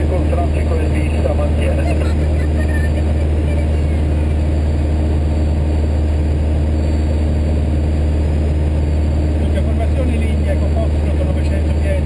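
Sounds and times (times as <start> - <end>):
propeller plane engine drone in cabin: 0.0 - 12.0.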